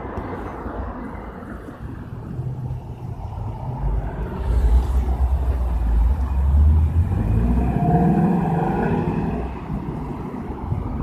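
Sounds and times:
car engine accelerating: 2.8s - 9.7s.

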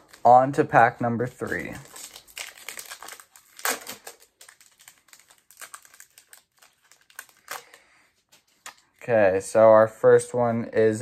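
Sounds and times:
wrapper crinkling: 1.2s - 9.0s.

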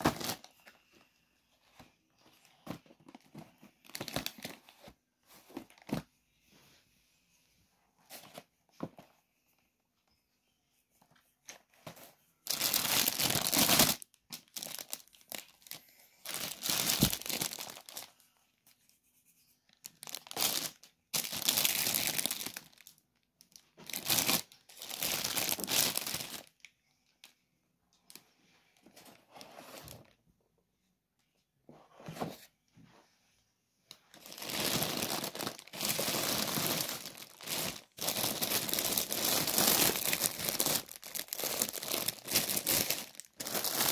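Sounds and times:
food packaging crinkling: 34.2s - 43.9s.

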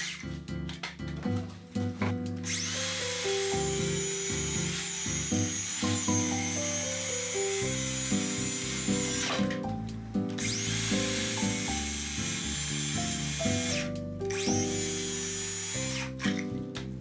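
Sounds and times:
circular saw cutting wood: 0.0s - 0.2s, 2.4s - 9.7s, 10.4s - 16.4s
background music: 0.0s - 17.0s.

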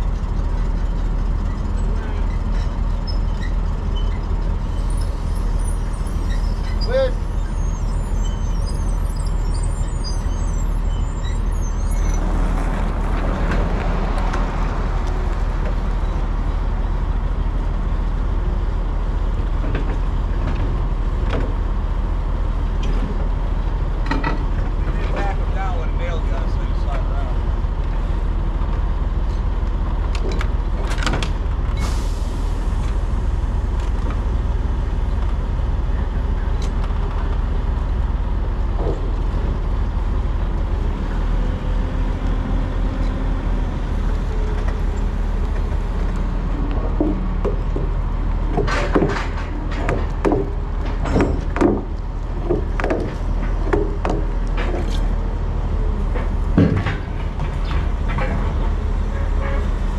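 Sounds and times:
diesel truck engine drone: 0.0s - 59.9s
short knocks and rattles: 46.8s - 55.1s.

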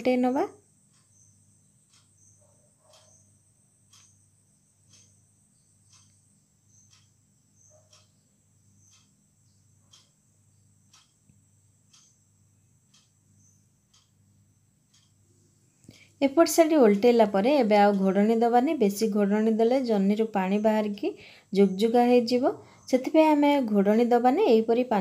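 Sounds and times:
faint ticks: 0.5s - 17.2s.

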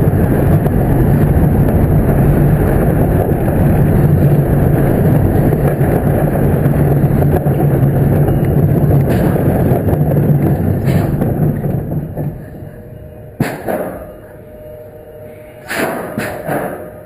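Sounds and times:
roller coaster rumbling on track: 0.0s - 17.0s
sharp clunk: 13.4s - 14.1s, 15.7s - 17.0s.

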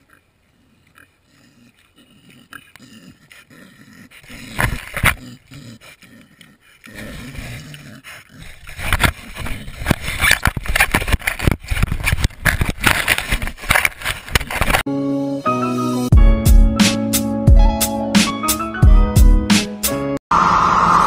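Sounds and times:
dog mouthing camera scrapes: 5.9s - 14.8s
music: 14.9s - 20.2s.

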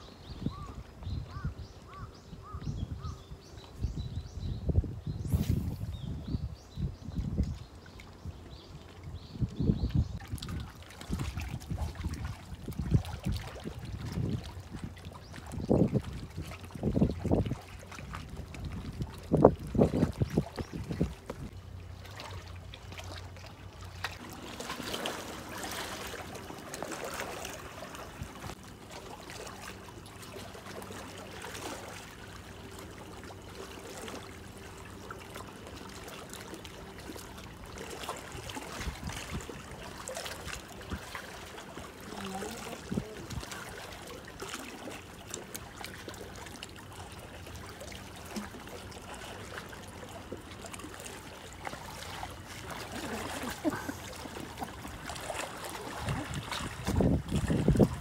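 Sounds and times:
water splashing and gurgling: 0.0s - 58.0s
small waves lapping on rocks: 10.0s - 58.0s.

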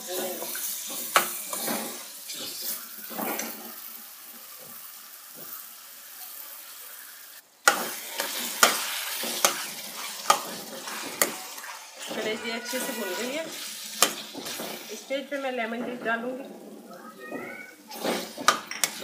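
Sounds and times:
liver sizzling in oil: 0.0s - 19.0s
metal spatula scraping a pan: 0.1s - 3.9s, 7.7s - 16.7s, 17.9s - 19.0s.

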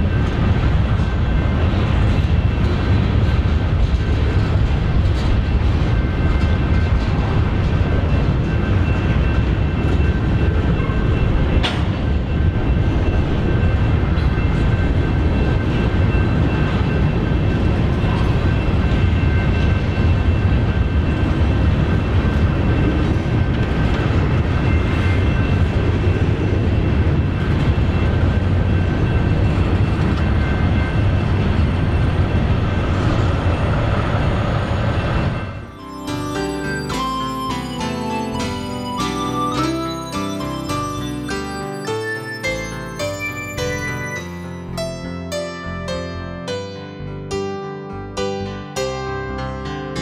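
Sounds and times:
train wheels rumbling on rails: 0.0s - 46.2s
crossing warning bell ringing: 0.0s - 50.0s.

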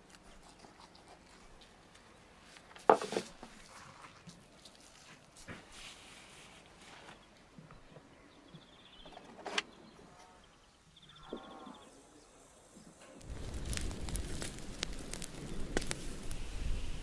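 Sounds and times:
wood fire crackling: 13.2s - 17.0s.

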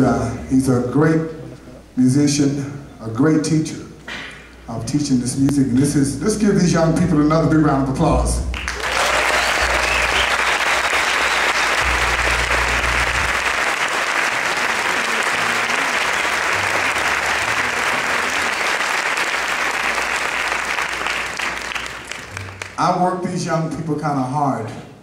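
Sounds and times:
audience applauding: 8.5s - 22.8s.

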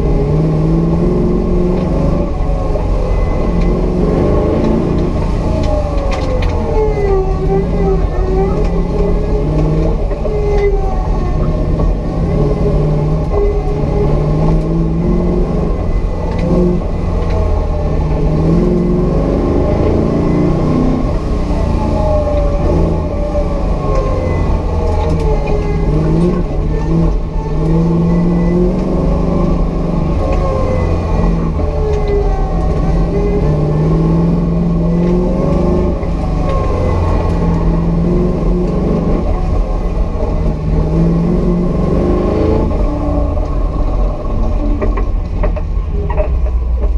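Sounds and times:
car engine revving: 0.0s - 46.9s.

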